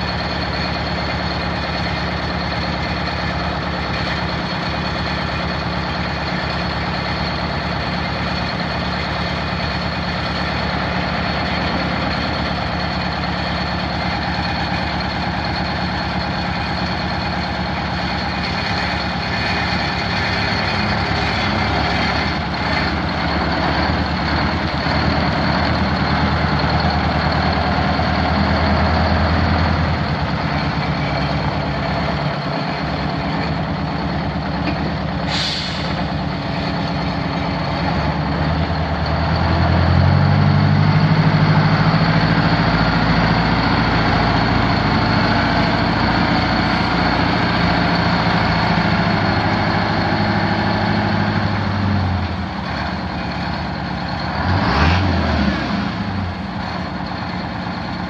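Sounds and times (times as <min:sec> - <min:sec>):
diesel engine running: 0:00.0 - 0:58.0
sharp air hiss: 0:35.3 - 0:36.0.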